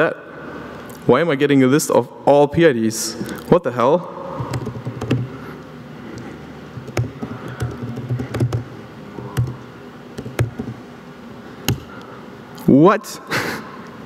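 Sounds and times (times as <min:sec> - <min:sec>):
low room noise: 0:00.0 - 0:14.0
laptop keys typing: 0:04.4 - 0:05.3, 0:06.8 - 0:09.6, 0:10.2 - 0:10.8.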